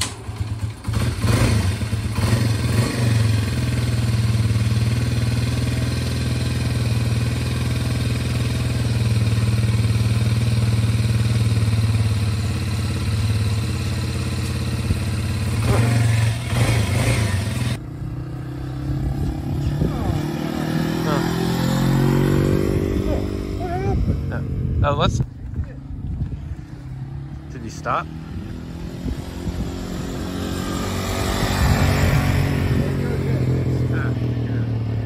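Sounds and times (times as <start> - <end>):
vehicle engine humming: 0.0 - 35.0.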